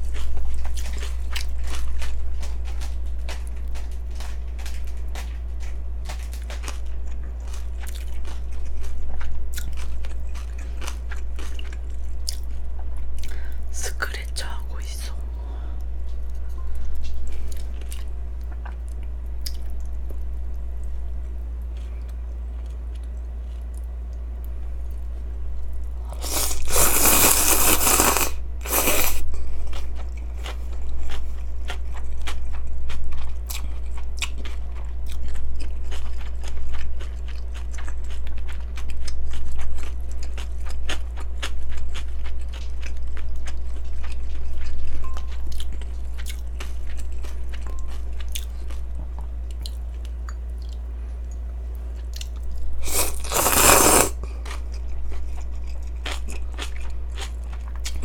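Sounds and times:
chewing with crisp crunching: 0.0 - 58.0
low electrical hum: 0.0 - 58.0
slurping noodles: 26.2 - 29.2, 52.8 - 54.2
sipping from a bowl: 52.8 - 54.2.

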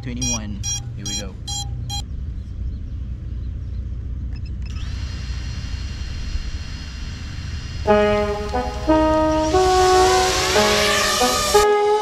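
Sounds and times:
drone motors whining: 4.3 - 11.6
music: 7.9 - 12.0.

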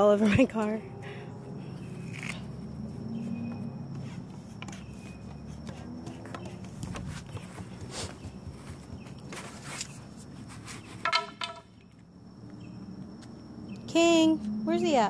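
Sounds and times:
wooden stick scraping in barrel: 4.0 - 11.6.

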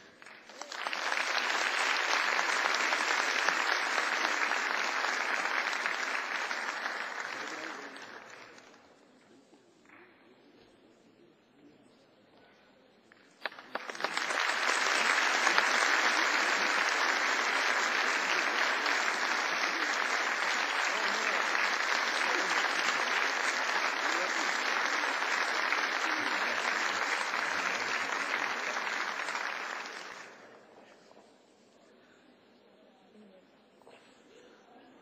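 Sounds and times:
audience applauding: 0.0 - 8.8, 13.3 - 30.6.

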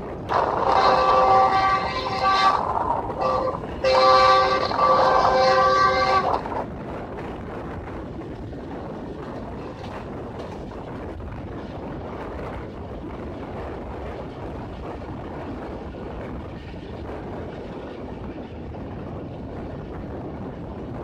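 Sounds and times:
train coach rolling on track: 0.0 - 21.0
train horn blast: 0.3 - 6.7.

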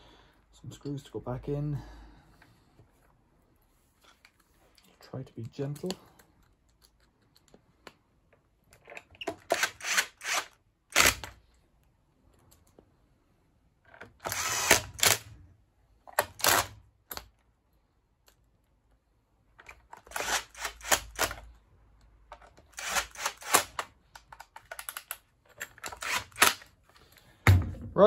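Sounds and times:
cordless drill whining and clicking: 9.2 - 11.4, 14.2 - 15.3, 20.0 - 21.4, 22.6 - 25.1, 25.7 - 26.7.

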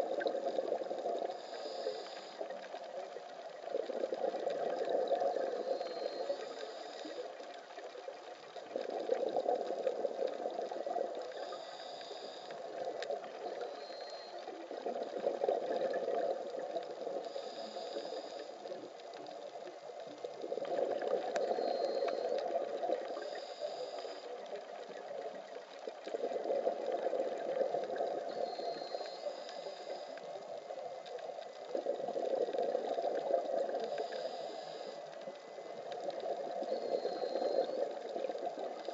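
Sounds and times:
regulator inhale hiss: 1.2 - 2.7, 5.6 - 7.4, 11.2 - 12.9, 17.1 - 18.8, 23.1 - 24.6, 28.3 - 30.4, 33.8 - 35.8
exhaled bubbles rushing: 14.6 - 17.2, 20.4 - 23.2.

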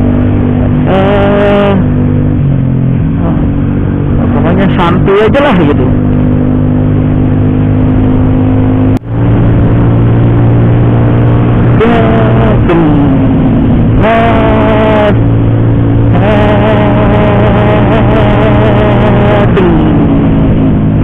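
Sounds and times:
scooter engine running: 0.0 - 21.0.

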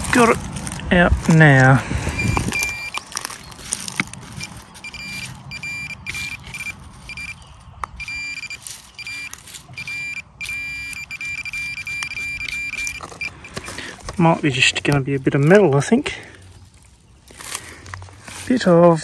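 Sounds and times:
road traffic hum: 0.0 - 19.0
metal detector beeping: 2.1 - 3.4, 4.2 - 14.1.

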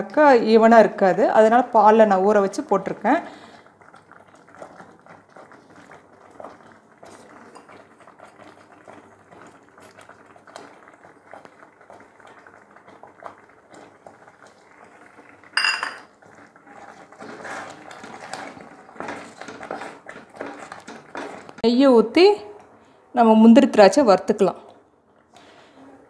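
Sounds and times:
spoon scraping metal pot: 15.6 - 21.6.

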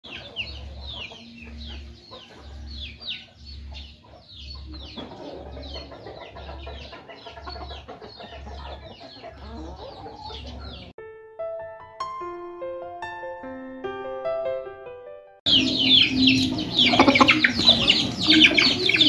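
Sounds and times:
chicks peeping: 0.0 - 10.9, 15.5 - 19.0
hens clucking: 0.0 - 10.9, 15.5 - 19.0.

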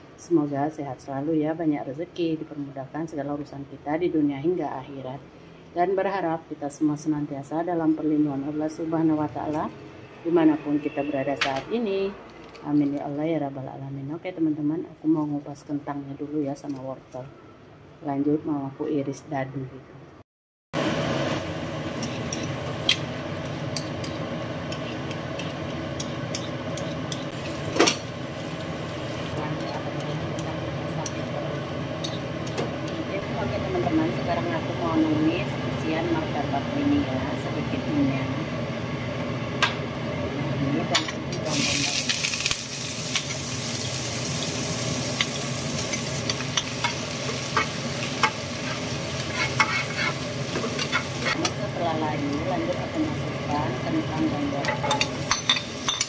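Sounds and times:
onion and garlic sizzling in oil: 20.8 - 34.2, 41.4 - 56.0.

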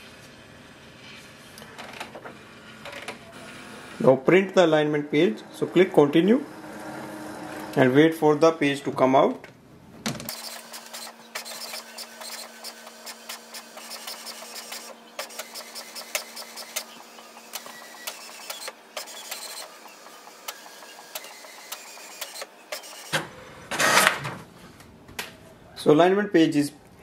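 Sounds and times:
printer motor hum: 0.2 - 8.6, 10.3 - 24.4
print head carriage ticking: 10.3 - 23.1
paper feeding: 10.3 - 24.4.

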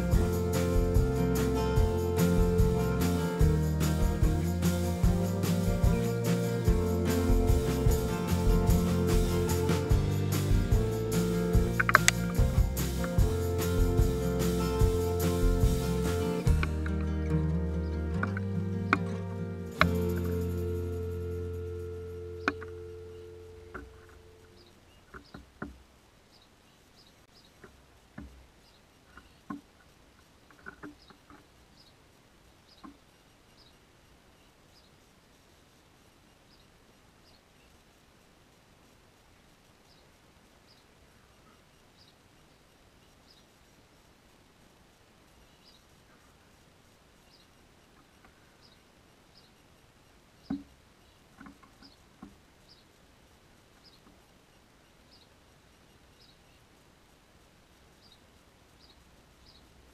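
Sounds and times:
birds pecking on wood: 6.2 - 17.0, 25.0 - 25.9, 27.5 - 31.6, 50.4 - 52.5
faint high bird chirps: 19.9 - 25.4.

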